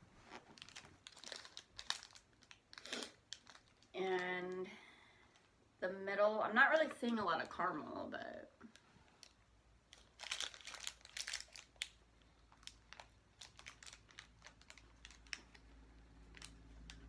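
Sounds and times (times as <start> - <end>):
plastic wrapper crinkling: 0.2 - 4.4, 8.7 - 17.0.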